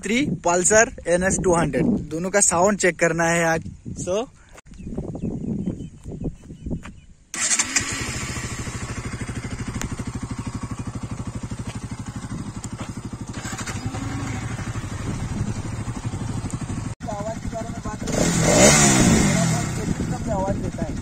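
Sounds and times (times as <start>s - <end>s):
electric starter: 7.4s - 9.9s, 13.3s - 14.5s
motorcycle engine idling: 7.4s - 21.0s.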